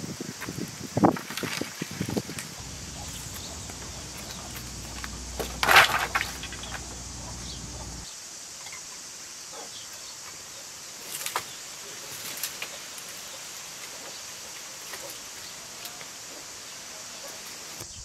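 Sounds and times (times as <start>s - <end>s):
dry sticks clattering: 2.3s - 8.0s
sticks knocking and snapping: 2.6s - 7.7s.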